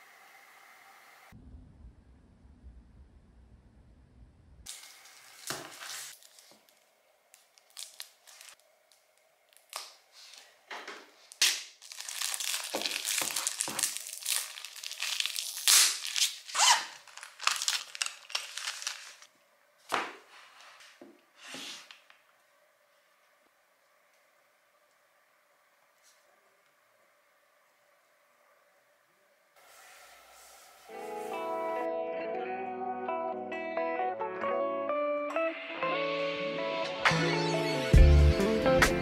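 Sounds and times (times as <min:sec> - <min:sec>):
plastic wrapping tearing: 0:04.7 - 0:08.6, 0:11.3 - 0:19.3
plastic wrapping crinkling: 0:04.7 - 0:10.5, 0:11.2 - 0:19.3.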